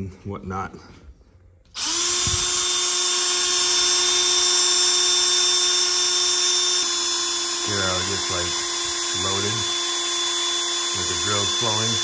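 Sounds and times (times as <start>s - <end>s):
cordless drill whining: 1.7s - 12.0s.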